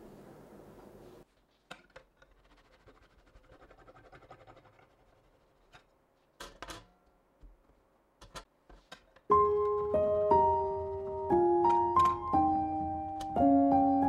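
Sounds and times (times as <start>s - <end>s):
knife sawing through sponge cake: 2.4s - 5.6s.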